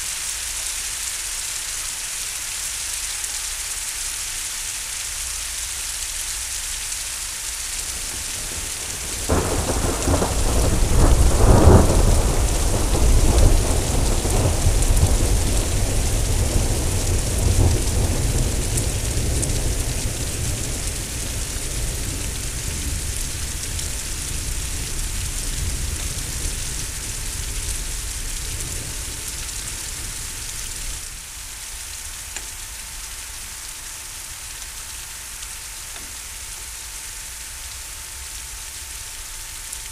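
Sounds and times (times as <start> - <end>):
rain hissing: 0.0 - 39.9
thunder rumbling: 8.0 - 31.0.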